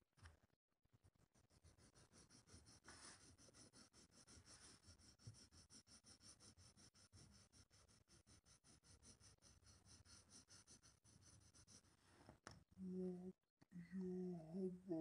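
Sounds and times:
pencil scratching on paper: 1.2s - 12.4s.

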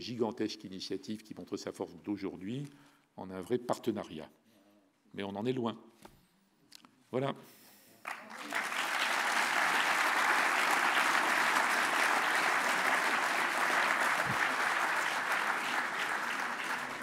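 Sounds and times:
audience applauding: 8.0s - 17.0s.

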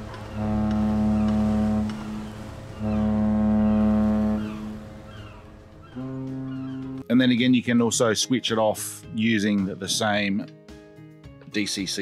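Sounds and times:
ship's horn blasts: 0.2s - 5.1s, 5.9s - 7.1s.

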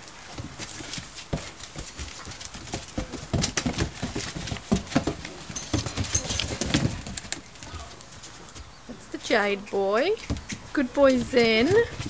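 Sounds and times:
paws scratching on plastic: 0.2s - 8.7s.

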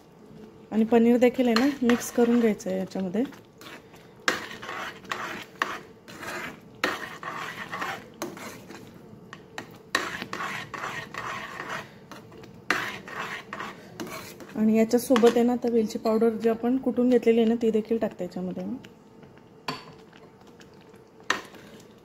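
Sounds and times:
metal spoon scraping metal pan: 1.4s - 2.7s, 3.3s - 8.8s, 9.6s - 15.4s.

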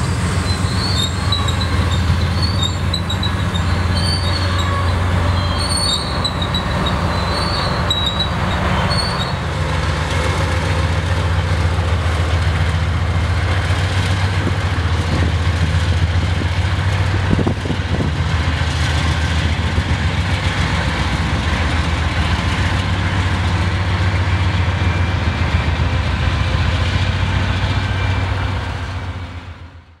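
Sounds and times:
wheel squeal: 0.0s - 9.4s
diesel locomotive hum: 0.0s - 30.0s.

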